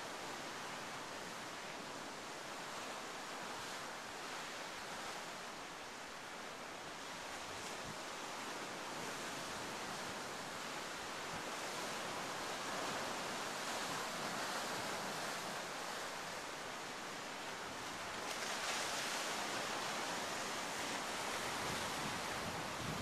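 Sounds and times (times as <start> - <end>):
ocean surf breaking on rocks: 8.7 - 23.0.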